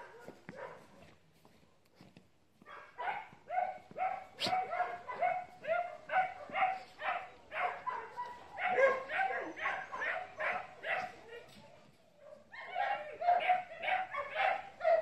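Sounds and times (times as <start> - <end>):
dog barking: 0.0 - 1.0, 2.6 - 11.5, 12.2 - 15.0.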